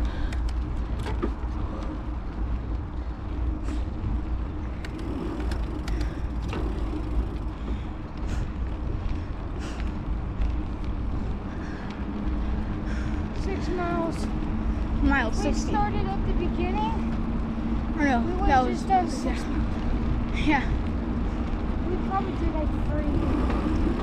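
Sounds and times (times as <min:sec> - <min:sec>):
bike clicks and knocks: 0:00.0 - 0:02.8, 0:04.6 - 0:13.2
tyres rolling on pavement: 0:00.0 - 0:24.0.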